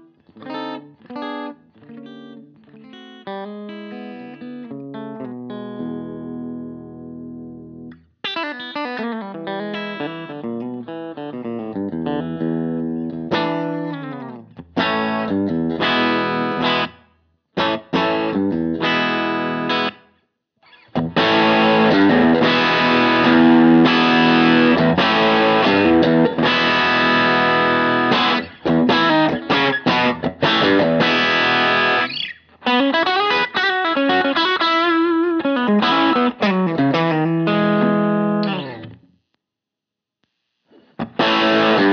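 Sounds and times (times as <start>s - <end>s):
electric guitar picked phrases: 0.0s - 17.0s, 17.6s - 20.0s, 20.7s - 39.0s, 40.8s - 41.9s
electric guitar sustained chords: 21.0s - 32.1s, 33.0s - 38.9s, 41.0s - 41.9s.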